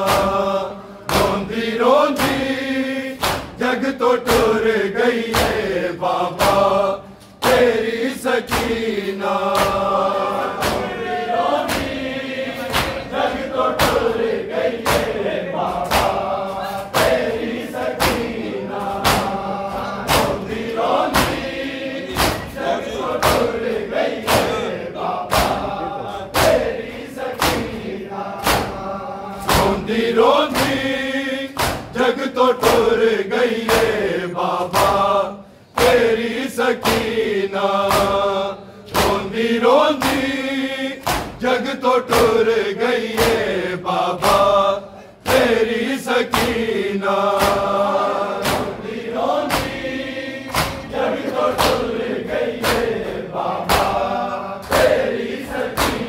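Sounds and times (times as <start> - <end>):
chest beating slaps: 0.0 - 33.0, 33.6 - 38.3, 38.9 - 40.4, 41.0 - 42.5, 43.1 - 43.6, 45.2 - 56.0
chorus singing a lament: 0.0 - 56.0.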